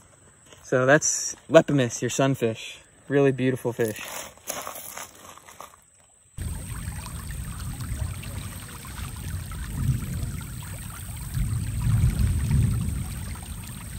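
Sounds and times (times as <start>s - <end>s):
low rumble: 6.4s - 13.9s
water running over rocks: 6.4s - 13.9s.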